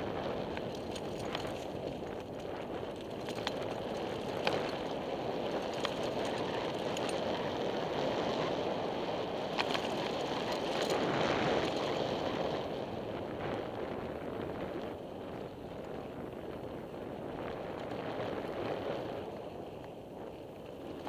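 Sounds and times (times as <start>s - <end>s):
sharp clicks and rattles: 0.5s - 7.3s, 9.5s - 11.0s.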